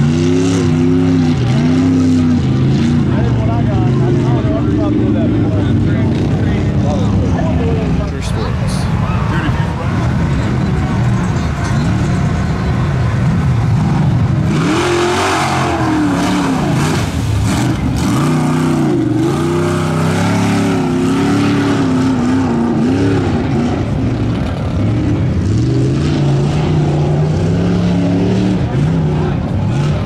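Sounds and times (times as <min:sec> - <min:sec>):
truck engine revving hard: 0:00.0 - 0:30.0
loud rushing noise: 0:13.6 - 0:21.4.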